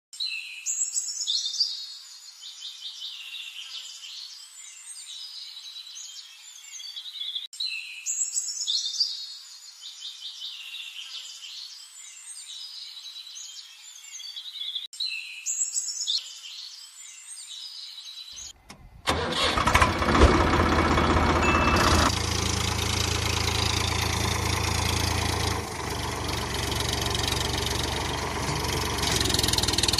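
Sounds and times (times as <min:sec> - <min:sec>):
birds chirping and twittering: 0:00.2 - 0:18.7, 0:21.0 - 0:29.9
engine running: 0:18.7 - 0:29.9.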